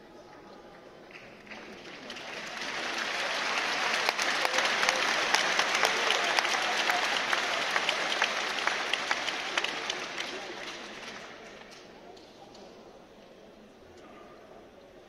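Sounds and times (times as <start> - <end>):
audience applause: 1.1 - 11.7.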